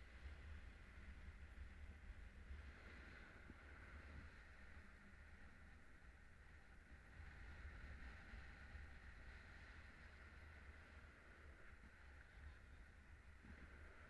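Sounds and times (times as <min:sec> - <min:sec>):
wind rumble and airflow hiss: 0:00.0 - 0:14.0.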